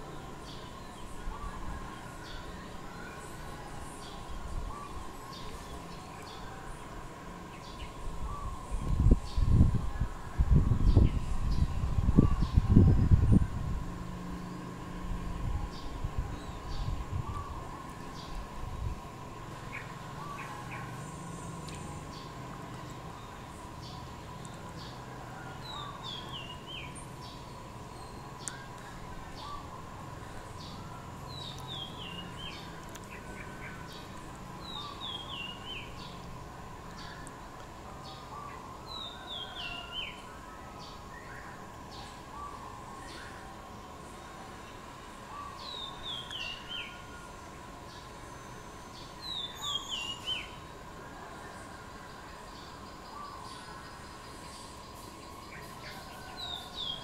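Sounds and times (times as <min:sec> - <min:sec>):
faint steady hum: 0:00.0 - 0:57.0
faint steady tone: 0:00.0 - 0:57.0
outdoor background hiss: 0:00.0 - 0:57.0
small bird singing downward phrase: 0:38.0 - 0:50.7.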